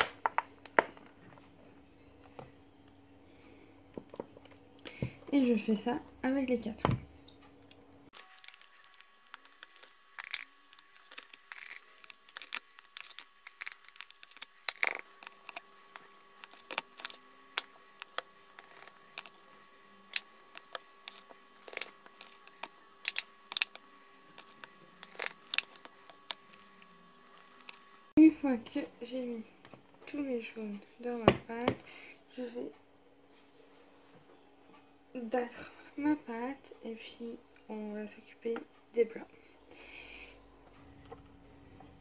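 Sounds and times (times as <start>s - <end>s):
plastic bottle crackling: 8.2s - 27.9s.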